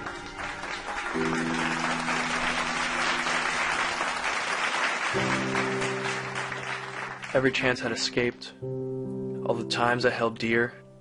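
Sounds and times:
crowd applauding: 0:00.0 - 0:08.0
sustained music chord: 0:00.0 - 0:11.0.

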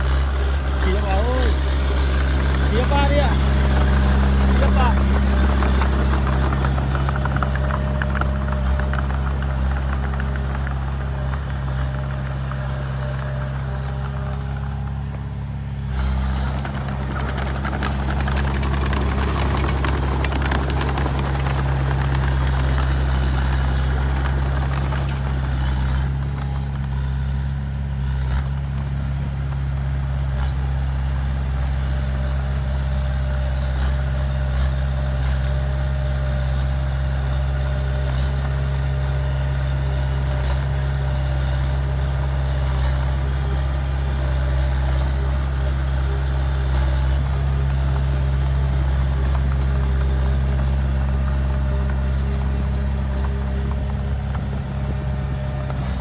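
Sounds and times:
bulldozer diesel engine droning: 0:00.0 - 0:56.0.

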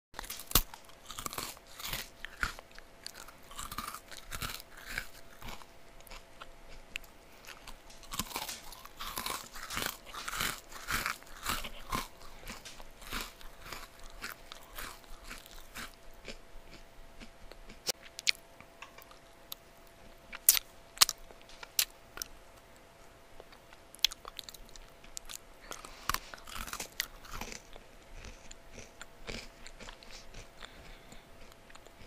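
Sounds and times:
person chewing crunchy cookie: 0:00.2 - 0:22.4, 0:23.4 - 0:32.0.

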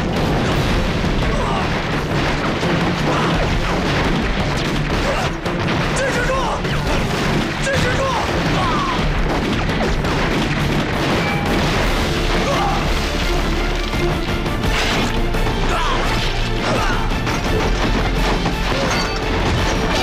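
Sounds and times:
dramatic background music: 0:00.0 - 0:20.0
explosions: 0:00.0 - 0:20.0
gunfire: 0:00.0 - 0:20.0
men shouting: 0:12.3 - 0:13.0, 0:15.6 - 0:17.2.

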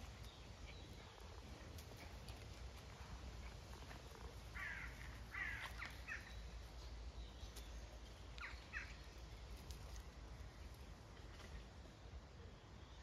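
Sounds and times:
crow cawing: 0:04.6 - 0:06.2.

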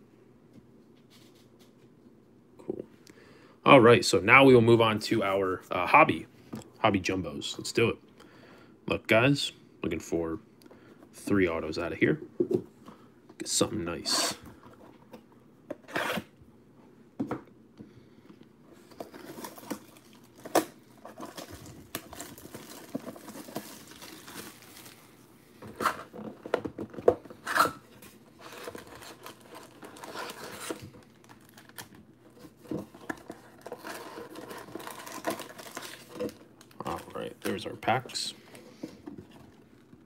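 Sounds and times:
foil packs rustling: 0:18.8 - 0:25.2, 0:28.2 - 0:38.4
plastic shrink wrap crinkling: 0:18.9 - 0:25.2, 0:28.2 - 0:38.3.

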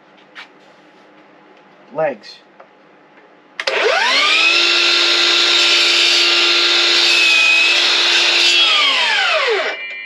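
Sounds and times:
saw blade cutting wood: 0:03.6 - 0:09.8
miter saw whining: 0:03.6 - 0:09.9.

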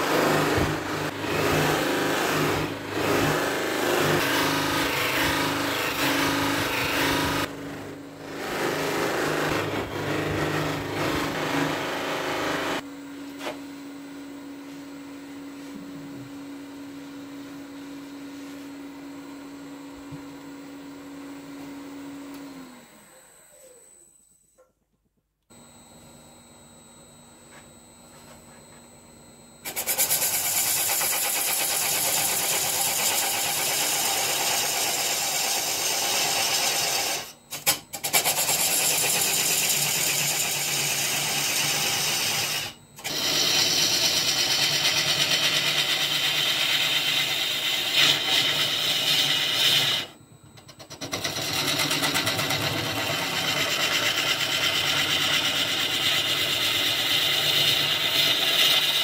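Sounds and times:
wood lathe humming: 0:00.0 - 0:12.8, 0:29.6 - 0:37.4, 0:38.1 - 0:50.2, 0:51.0 - 0:59.0
turning tool cutting wood hiss: 0:29.6 - 0:50.2, 0:53.2 - 0:59.0.

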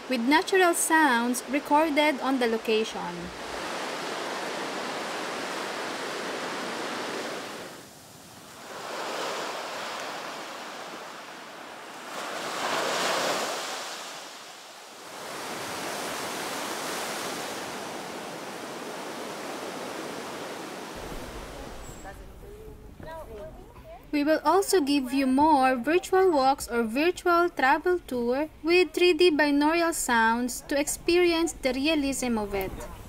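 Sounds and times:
surf washing up a beach: 0:03.1 - 0:22.3.

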